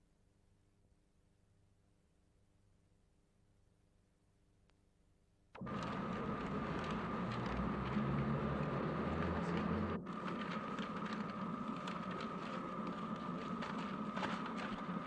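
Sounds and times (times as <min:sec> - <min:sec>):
film crackle clicks and rustles: 0:05.6 - 0:15.0
steady high hum: 0:05.6 - 0:15.0.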